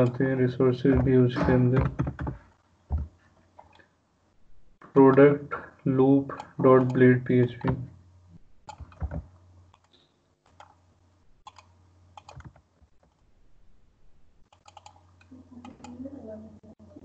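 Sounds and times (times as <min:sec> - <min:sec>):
low steady hum: 0:00.0 - 0:17.0
keyboard typing: 0:00.9 - 0:03.8, 0:06.3 - 0:07.7, 0:08.6 - 0:10.8, 0:11.4 - 0:13.2, 0:14.4 - 0:16.0.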